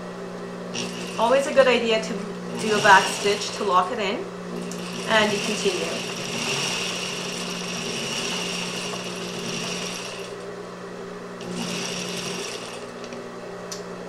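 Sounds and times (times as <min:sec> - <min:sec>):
low motor hum: 0:00.0 - 0:14.0
sewing machine stitching: 0:00.7 - 0:01.6, 0:02.5 - 0:03.9, 0:04.6 - 0:10.4, 0:11.4 - 0:12.9.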